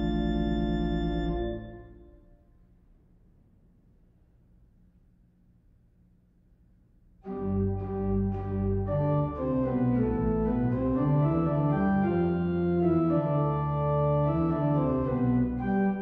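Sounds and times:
pipe organ playing chords: 0:00.0 - 0:02.2, 0:07.3 - 0:16.0.

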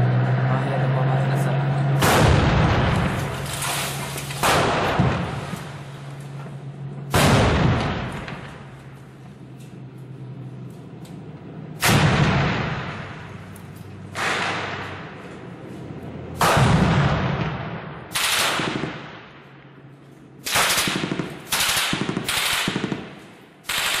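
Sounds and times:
gunshots with echo: 0:14.1 - 0:15.2, 0:16.4 - 0:19.4, 0:20.4 - 0:24.0
machine-gun bursts: 0:20.5 - 0:23.0, 0:23.7 - 0:24.0.

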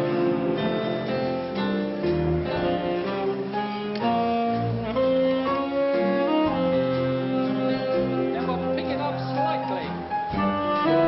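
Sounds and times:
dance band playing slow song: 0:00.0 - 0:11.0
saxophone melody: 0:02.0 - 0:09.2, 0:09.9 - 0:11.0.

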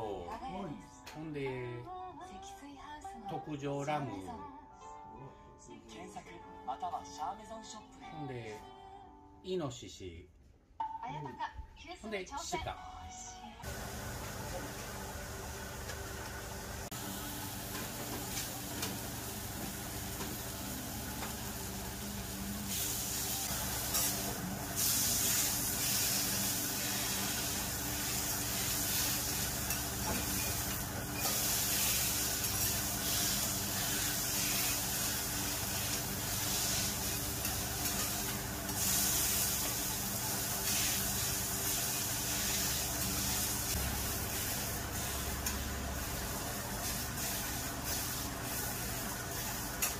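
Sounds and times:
meat sizzling on a griddle: 0:17.0 - 0:49.9.

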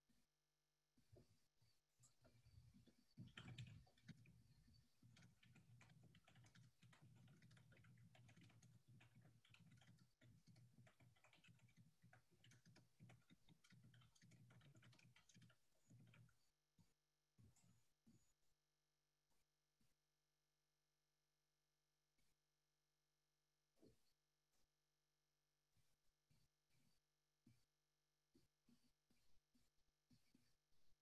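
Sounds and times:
keyboard typing: 0:02.0 - 0:16.4.

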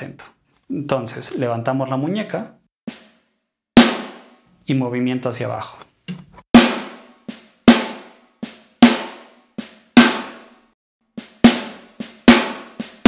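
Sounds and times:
snare drum ghost notes and accents: 0:02.9 - 0:04.4, 0:06.6 - 0:13.0.

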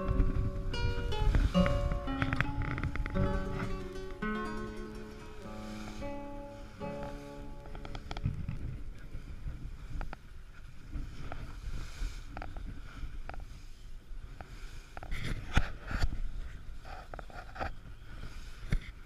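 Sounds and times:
steady low rumble: 0:00.0 - 0:13.4.

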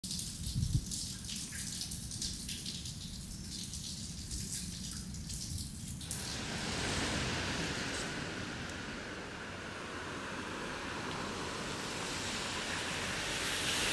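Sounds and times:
rain dripping: 0:00.0 - 0:13.9
traffic on wet street: 0:05.8 - 0:13.9
low rumble: 0:06.0 - 0:13.9.

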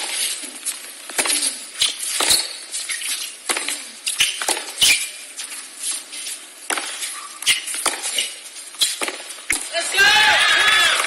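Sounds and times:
tennis ball struck by rackets: 0:03.4 - 0:05.0, 0:06.7 - 0:08.4, 0:09.0 - 0:09.7
tennis ball bouncing on hard court: 0:03.5 - 0:05.0, 0:06.7 - 0:09.7.

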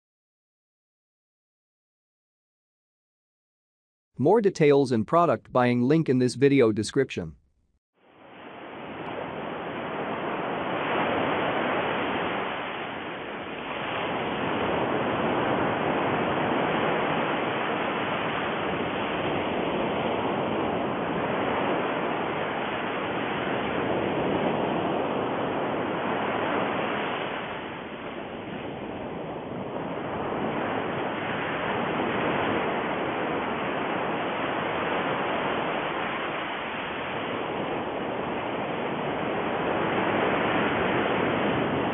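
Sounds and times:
steady rushing water: 0:08.4 - 0:28.5.

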